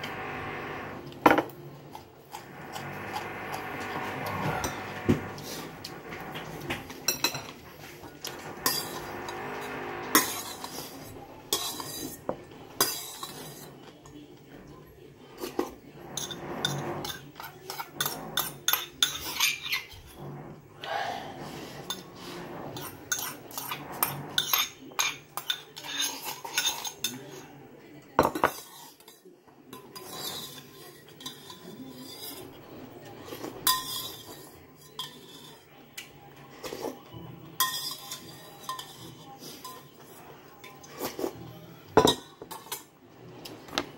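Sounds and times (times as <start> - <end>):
spoon clinking against bowls: 33.6 - 35.6, 37.5 - 41.3, 42.0 - 42.9.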